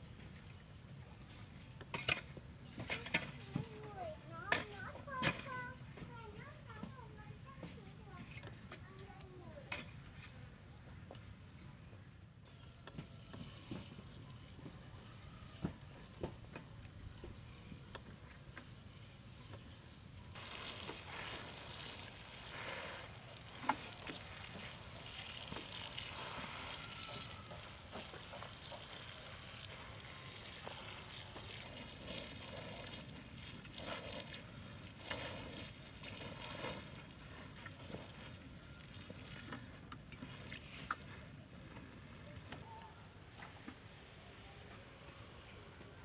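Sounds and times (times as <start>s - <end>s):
watering can sprinkling onto soil: 12.7s - 42.6s.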